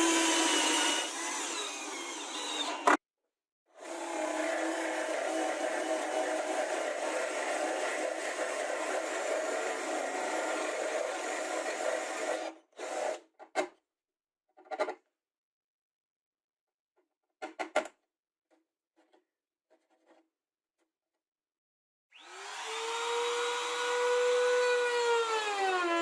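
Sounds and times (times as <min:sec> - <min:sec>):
drill boring into plywood: 0:00.0 - 0:03.0, 0:03.8 - 0:13.2, 0:22.1 - 0:26.0.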